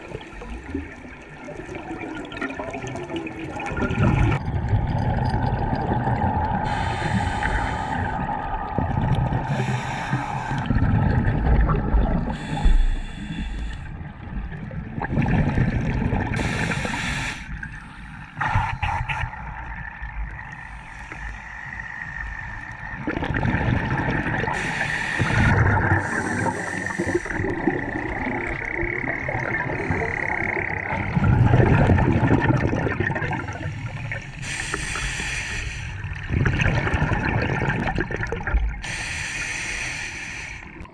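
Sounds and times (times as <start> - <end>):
rumbling bubbles underwater: 0.0 - 39.2
diver's regulator hissing: 6.7 - 8.2, 9.5 - 10.7, 12.3 - 13.9, 16.4 - 19.2, 24.6 - 27.9, 34.4 - 36.0, 38.8 - 40.8.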